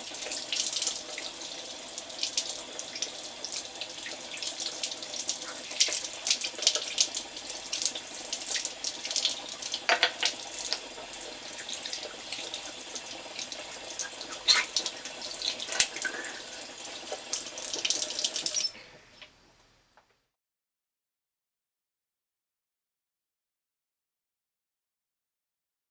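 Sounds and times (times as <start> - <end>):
tap water running onto hands: 0.0 - 18.8.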